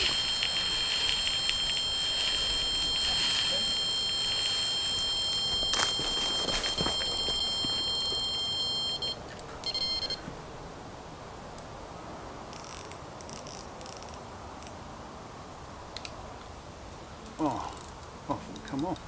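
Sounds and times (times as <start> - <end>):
faint rustling: 0.0 - 8.5
bite alarm high-pitched tone: 0.0 - 10.2.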